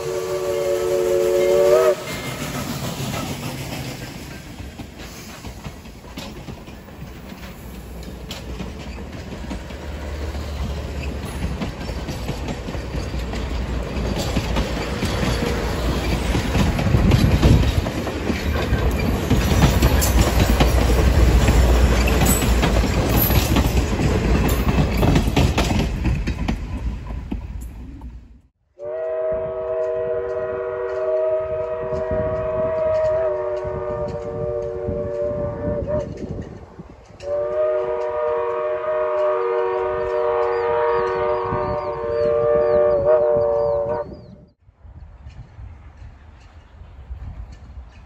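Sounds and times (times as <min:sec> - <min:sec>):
steam train running on rails: 0:00.0 - 0:48.0
wheels clicking over rail joints: 0:01.8 - 0:28.2, 0:35.8 - 0:38.2.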